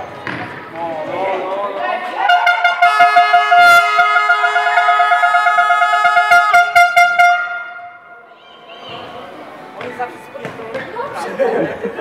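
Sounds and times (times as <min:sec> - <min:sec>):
loud long horn note: 0:02.3 - 0:08.2.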